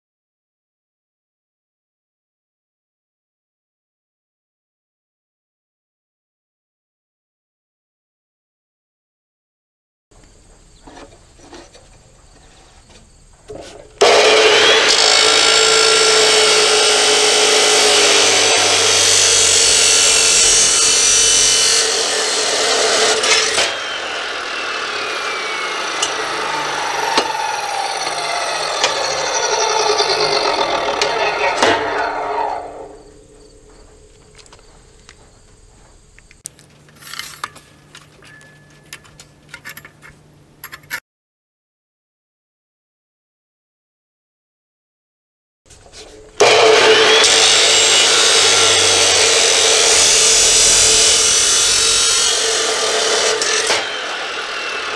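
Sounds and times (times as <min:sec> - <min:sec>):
abrasive saw grinding steel: 0:10.8 - 0:35.6, 0:45.8 - 0:54.9
saw motor winding down: 0:14.0 - 0:34.5, 0:46.4 - 0:54.9.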